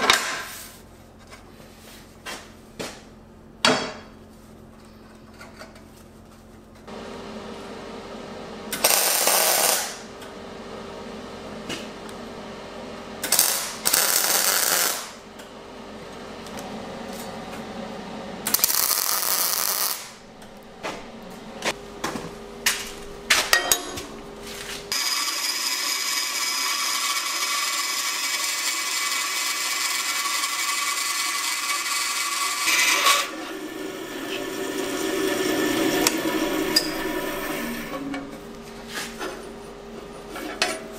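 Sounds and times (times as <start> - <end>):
welding arc crackling: 8.7 - 10.0, 13.2 - 15.2, 18.4 - 20.8, 31.6 - 38.5.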